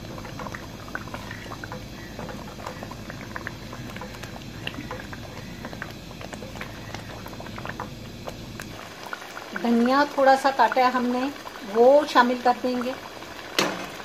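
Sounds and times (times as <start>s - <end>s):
wooden spoon stirring: 0.0s - 8.7s
curry bubbling and spattering: 0.0s - 14.0s
low steady hum: 0.0s - 14.0s.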